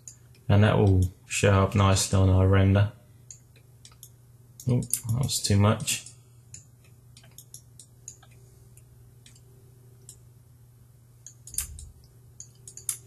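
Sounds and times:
steady low hum: 0.0s - 13.0s
mouse and keyboard clicks: 6.6s - 8.4s, 11.3s - 13.0s.

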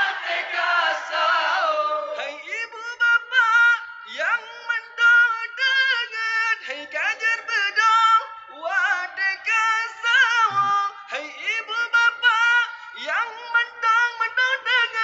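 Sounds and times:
man singing into a microphone: 2.0s - 15.0s.

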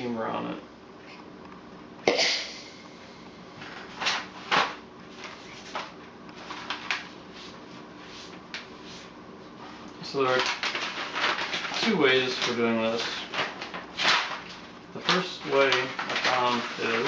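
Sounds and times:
paper rustling and crinkling: 3.6s - 17.0s.

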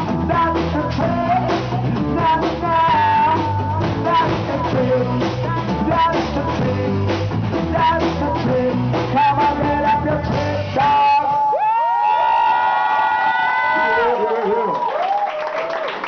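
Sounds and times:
person singing: 0.0s - 11.8s
drums: 0.0s - 14.2s.

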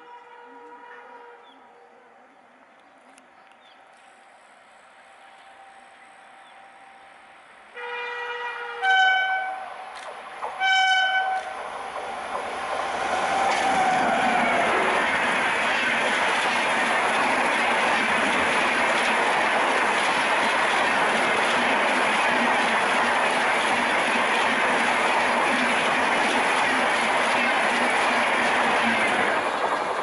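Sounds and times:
train passing at speed: 0.0s - 30.0s
locomotive horn blasts: 7.8s - 9.8s, 10.6s - 11.6s.

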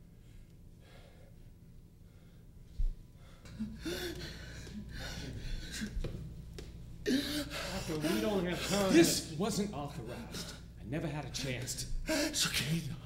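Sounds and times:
man gasping: 3.2s - 6.1s, 7.0s - 8.6s, 12.0s - 12.5s.

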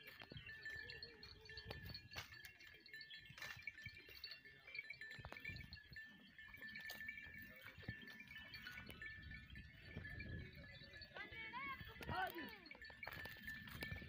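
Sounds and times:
small bells tinkling: 0.0s - 14.0s
goats feeding clicks: 11.8s - 14.0s.

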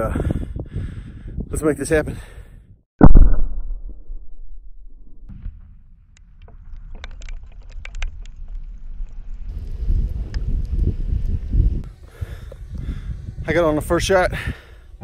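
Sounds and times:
explosive blast: 3.0s - 5.9s
debris falling ticks: 6.1s - 9.2s.

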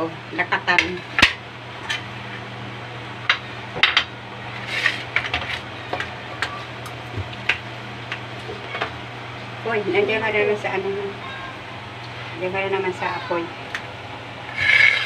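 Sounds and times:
spoon scraping metal bowl: 14.5s - 15.0s.

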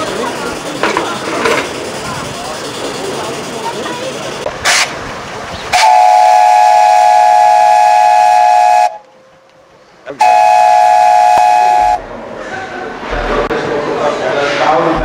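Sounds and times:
steam whistle blasts: 5.7s - 9.1s, 10.2s - 12.0s.

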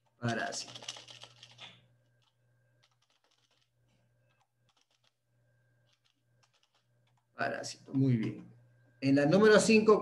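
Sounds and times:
keyboard typing: 0.0s - 5.2s, 5.8s - 7.3s
low steady hum: 1.2s - 10.0s.

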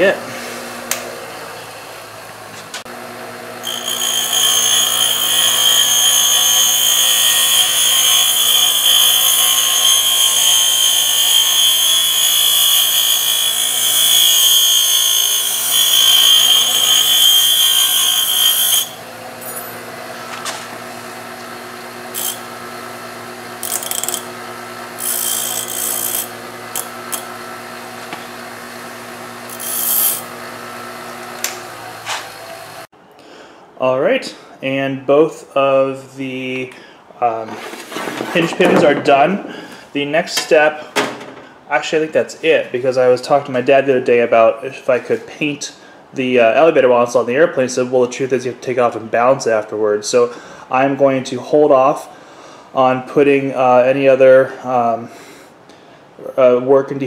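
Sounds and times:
bench grinder humming: 0.0s - 32.9s
loud high metal grinding: 2.3s - 32.9s.

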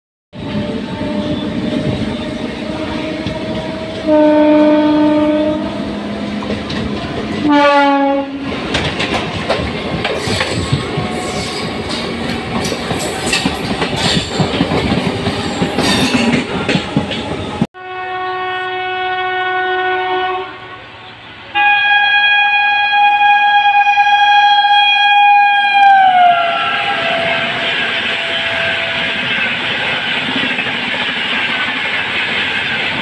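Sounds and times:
train horn: 0.4s - 6.6s, 7.4s - 8.6s, 17.8s - 29.6s
train wheels clattering over rail joints: 8.6s - 17.6s.

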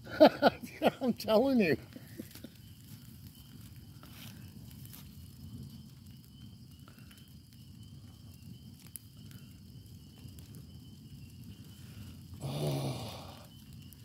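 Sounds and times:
fire crackles: 0.0s - 14.0s
low rumble of flames: 0.0s - 14.0s.

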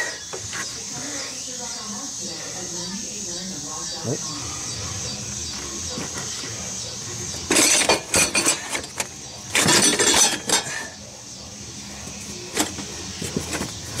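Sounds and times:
metal parts clattering and scraping: 7.5s - 11.0s.

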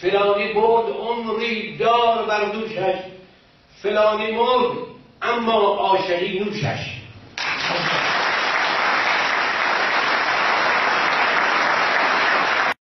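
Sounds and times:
audience applauding: 7.4s - 12.8s.

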